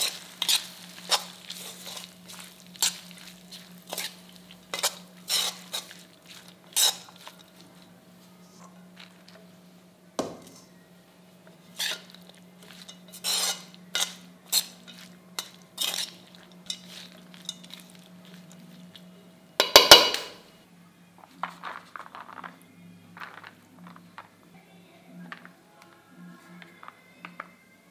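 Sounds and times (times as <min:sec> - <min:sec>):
metal ladle scraping metal pan: 0:00.0 - 0:03.2, 0:03.8 - 0:07.4, 0:11.7 - 0:17.8.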